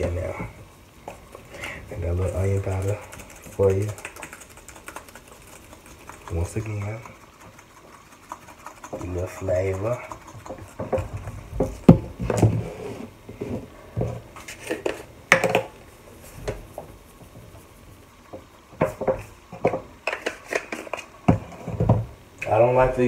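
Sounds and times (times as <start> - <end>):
spice containers shaken: 2.1 - 11.3.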